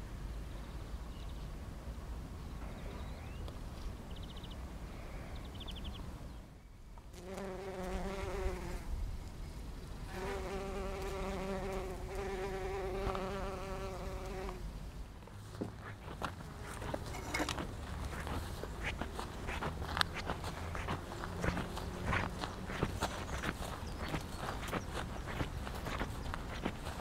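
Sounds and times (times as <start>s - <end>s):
bumblebee buzzing: 7.1s - 8.9s, 10.1s - 14.6s.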